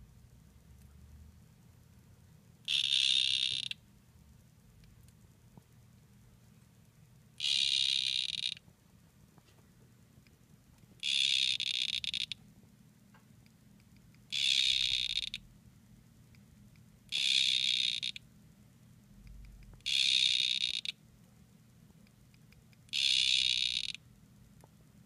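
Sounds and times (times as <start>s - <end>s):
frog calling: 2.6s - 3.8s, 7.4s - 8.6s, 11.0s - 12.4s, 14.3s - 15.4s, 17.1s - 18.2s, 19.8s - 21.0s, 22.9s - 24.0s.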